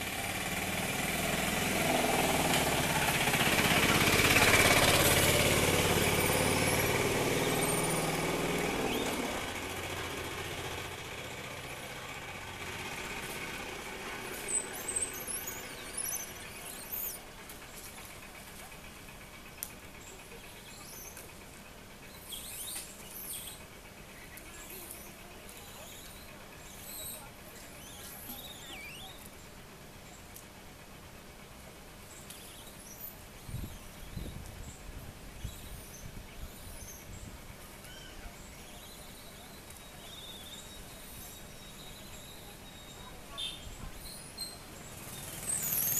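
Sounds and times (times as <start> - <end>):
low outdoor rumble: 0.0 - 45.9
faint high-pitched chirping: 14.3 - 17.9, 22.1 - 30.3, 32.1 - 45.9
wavering bird call: 24.6 - 29.3, 37.8 - 44.6.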